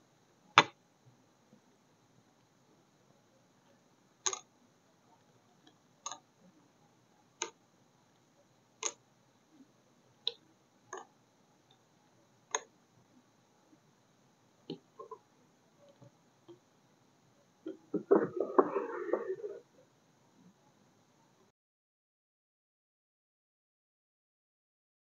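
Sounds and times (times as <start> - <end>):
faint hiss: 0.0 - 21.5.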